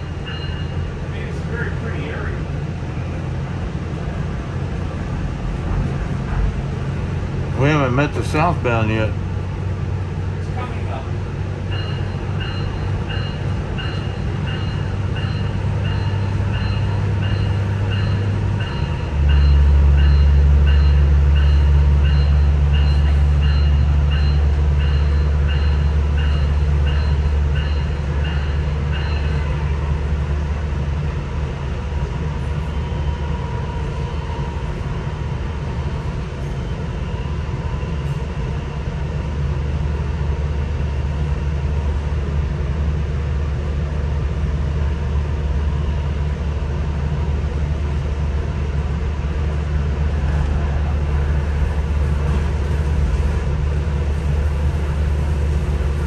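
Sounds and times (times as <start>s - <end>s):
diesel train drone: 0.0s - 56.0s
high ringing: 0.2s - 0.9s
track noise: 45.1s - 56.0s.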